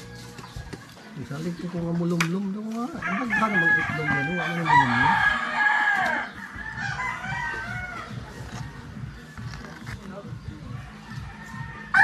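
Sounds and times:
rooster crowing: 3.0s - 9.4s, 10.9s - 12.0s.

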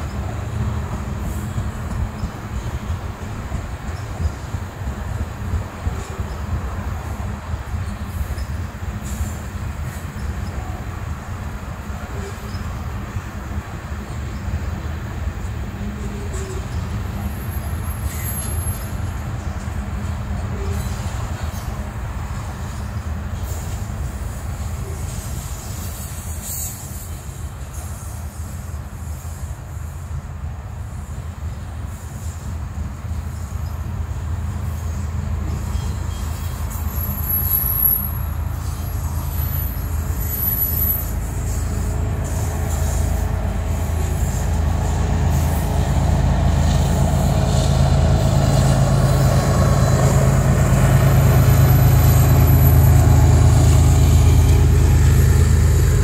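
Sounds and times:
diesel locomotive: 0.0s - 56.0s
train wheels rumbling on rail: 0.0s - 56.0s
high-pitched wheel squeals: 35.6s - 43.1s.

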